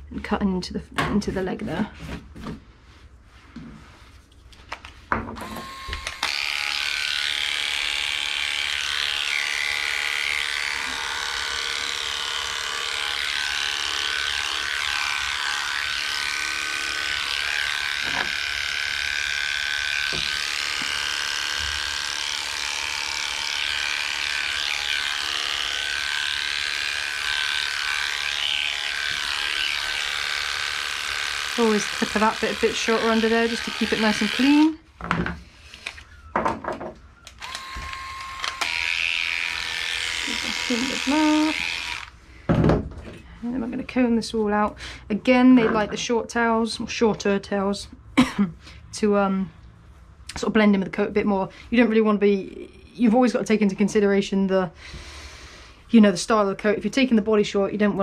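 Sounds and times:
electric clipper buzzing: 5.4 - 34.8, 37.3 - 42.2.

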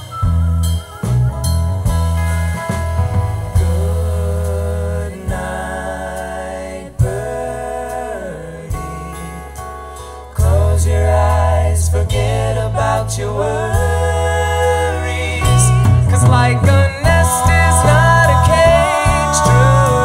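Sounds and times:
acoustic guitar: 0.0 - 20.0
drums: 0.0 - 20.0
keyboard: 0.0 - 20.0
person singing: 3.6 - 9.6, 12.0 - 20.0
electric guitar: 14.3 - 20.0.

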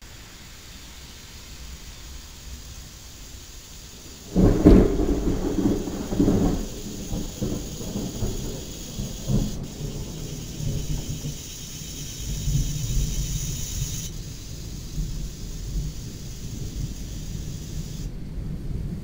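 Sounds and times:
thunder crack and rumble: 4.0 - 19.0.

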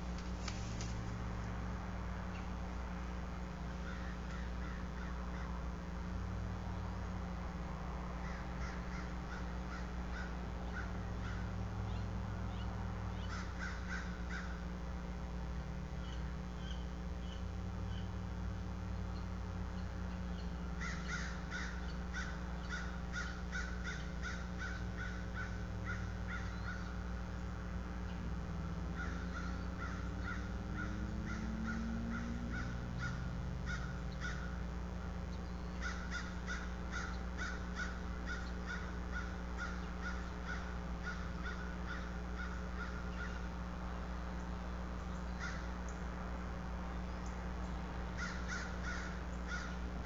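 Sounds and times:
steady low hum: 0.0 - 50.0
crows cawing: 3.7 - 5.7, 8.1 - 11.8, 13.1 - 14.8, 20.7 - 27.2, 28.6 - 34.6, 35.8 - 43.6, 45.3 - 45.9, 48.1 - 49.9.

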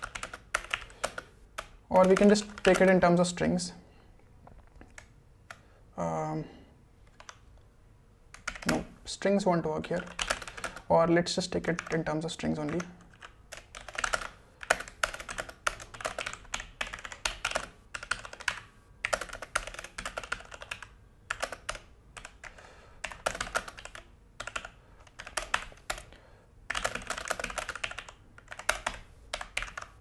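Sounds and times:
mechanical keyboard typing: 0.0 - 3.1, 7.1 - 7.4, 8.3 - 8.9, 9.9 - 10.9, 11.6 - 26.1, 26.7 - 30.0.

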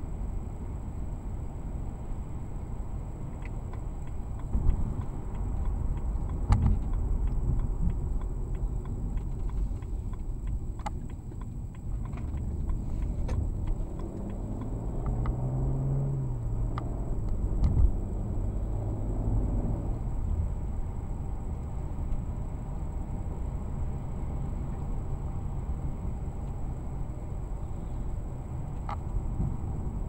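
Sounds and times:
car road and engine noise: 0.0 - 30.0
light ticks: 3.4 - 15.4, 28.7 - 29.5.

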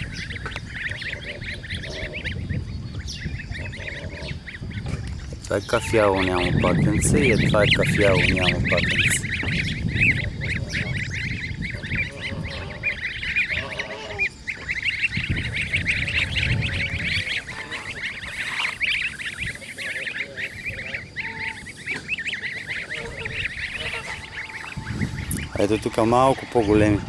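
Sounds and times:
low rumble: 0.0 - 19.6, 20.5 - 27.0
ducklings peeping: 0.0 - 27.0
lower duckling call: 5.7 - 27.0.

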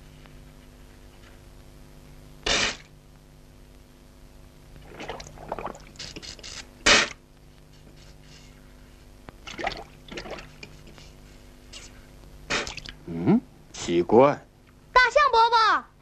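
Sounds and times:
faint steady hum: 0.0 - 16.0
soft water splashing: 4.8 - 6.0, 9.4 - 10.6.

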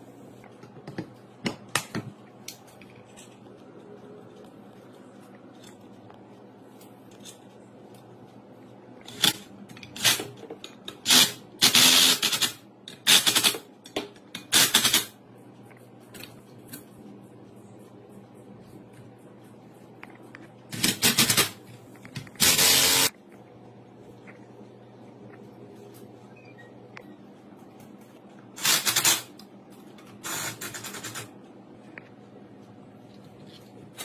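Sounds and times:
short harsh bursts: 22.4 - 23.1.

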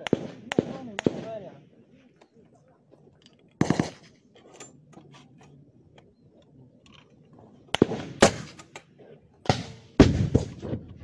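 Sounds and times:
gunshots: 0.0 - 1.6, 3.6 - 4.2, 7.7 - 8.7, 9.4 - 11.0.

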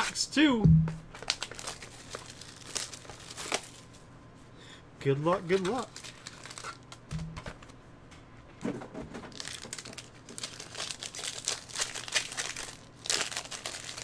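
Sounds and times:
foil wrapper crinkling: 1.1 - 4.0, 5.4 - 7.6, 9.3 - 14.0.

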